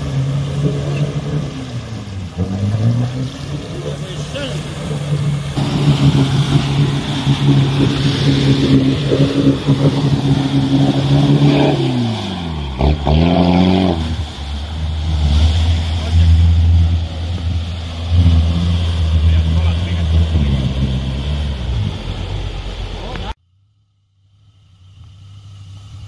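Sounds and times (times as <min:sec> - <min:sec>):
off-road engine revving: 0:00.0 - 0:23.4
tyres churning through mud: 0:00.0 - 0:23.4.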